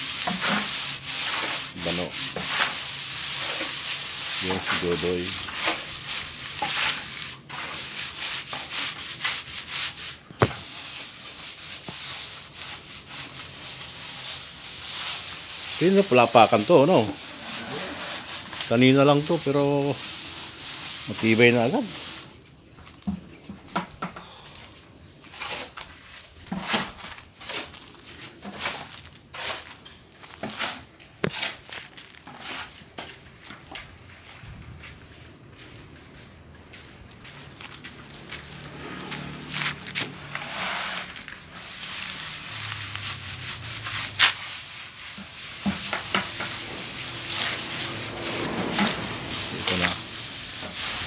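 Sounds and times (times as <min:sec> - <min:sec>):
hand float scraping wet concrete: 0:00.0 - 0:23.6, 0:24.3 - 0:34.0, 0:36.8 - 0:51.0
footsteps scuffing on rough ground: 0:26.9 - 0:40.2.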